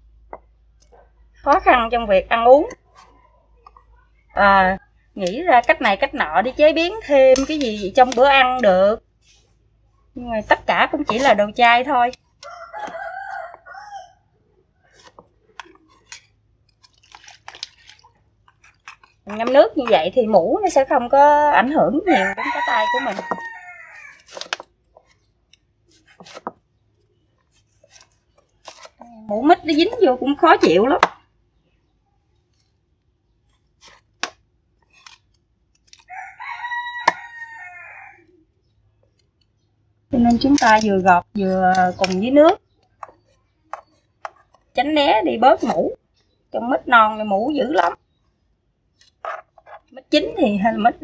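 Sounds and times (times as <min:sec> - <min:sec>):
rooster crowing: 0:12.4 - 0:14.3, 0:22.1 - 0:24.3, 0:36.1 - 0:38.3.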